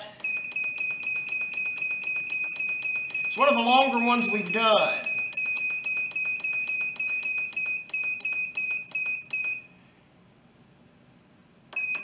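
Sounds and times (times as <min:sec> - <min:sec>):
short high beeps: 0:00.2 - 0:09.8, 0:11.8 - 0:12.0.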